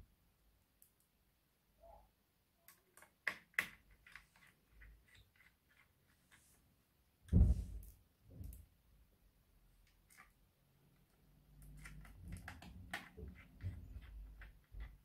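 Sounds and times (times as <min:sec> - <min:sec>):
dull thump: 0:07.3 - 0:07.8.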